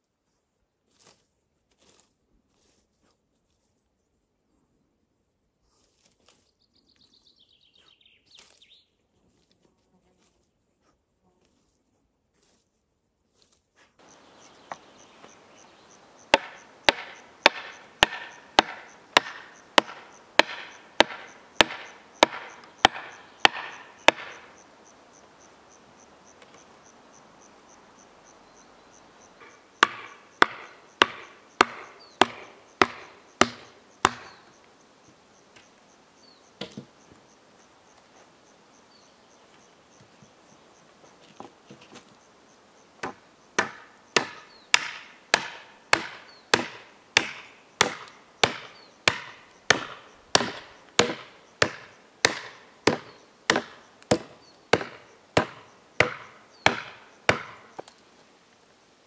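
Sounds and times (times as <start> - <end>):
faint insects trilling: 0.0 - 59.0
hatchet chopping wooden pole: 16.2 - 24.6, 29.4 - 34.5, 43.0 - 57.9.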